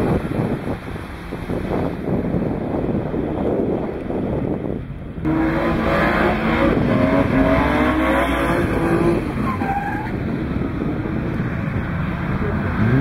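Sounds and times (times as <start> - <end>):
wind on microphone: 0.0 - 13.0
car engine revving hard: 5.3 - 9.4, 12.6 - 13.0.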